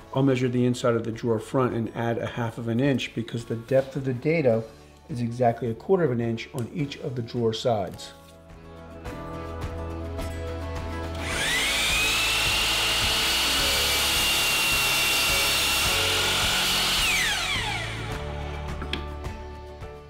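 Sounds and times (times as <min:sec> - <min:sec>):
miter saw motor whine: 0:11.2 - 0:18.6.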